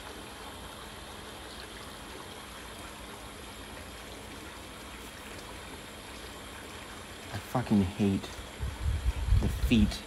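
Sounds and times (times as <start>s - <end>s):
running water rushing: 0.0s - 10.0s.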